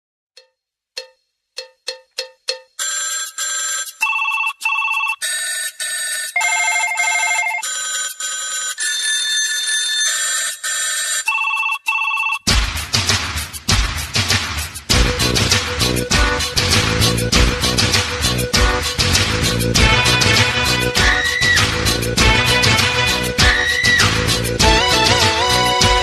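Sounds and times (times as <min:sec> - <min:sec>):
electronic bell-like tune: 0:06.3 - 0:07.7
song with bass: 0:14.9 - 0:26.0.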